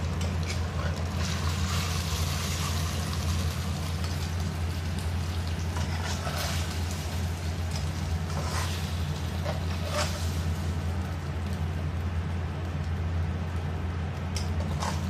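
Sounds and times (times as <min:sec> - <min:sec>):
steady low hum: 0:00.0 - 0:15.0
spatula scraping metal wok: 0:05.7 - 0:07.1, 0:07.7 - 0:10.6, 0:14.6 - 0:15.0.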